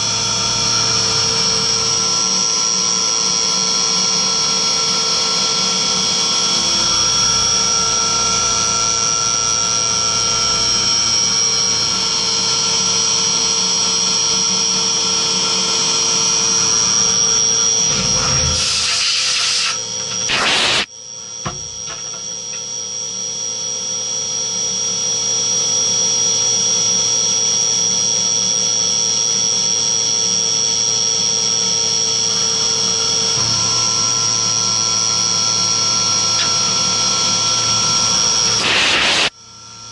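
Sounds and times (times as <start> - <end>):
milling machine spindle whine: 0.0 - 39.6
metal cutting noise: 16.5 - 20.9, 36.1 - 39.3.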